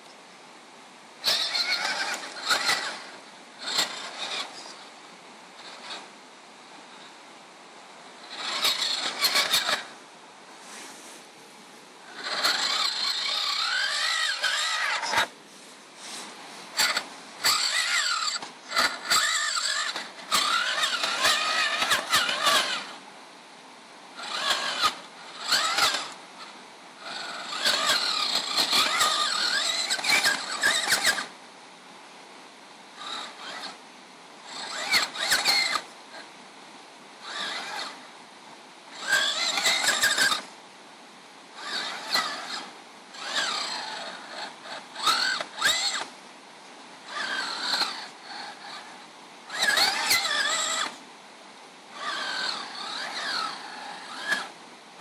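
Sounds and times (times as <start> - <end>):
small electric motor whining: 1.2 - 7.2, 8.0 - 10.0, 12.0 - 15.4, 16.0 - 23.1, 24.1 - 31.4, 32.8 - 36.3, 37.2 - 38.1, 38.9 - 40.6, 41.5 - 46.2, 47.0 - 51.1, 51.9 - 55.0.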